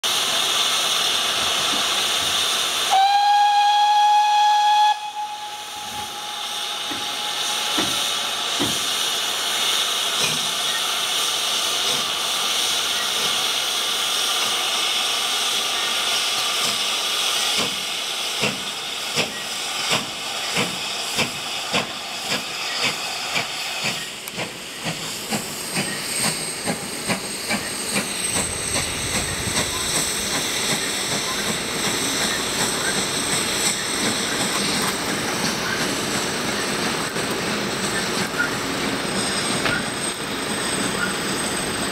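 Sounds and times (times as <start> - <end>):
steam hissing: 0.0 - 41.9
steam locomotive exhaust chuffs: 0.1 - 41.9
steam locomotive whistle: 2.8 - 8.7.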